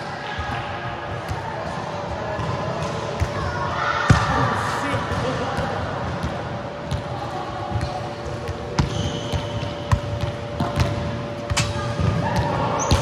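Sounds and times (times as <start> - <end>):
volleyballs struck and bouncing: 0.5 - 7.1, 7.7 - 13.0
shoe squeak: 8.8 - 10.0, 12.8 - 13.0.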